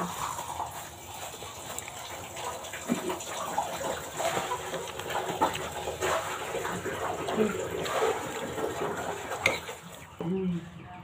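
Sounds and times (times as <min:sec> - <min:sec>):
wet eating sounds: 0:00.0 - 0:10.3
cutlery clinking against a bowl: 0:09.4 - 0:09.8.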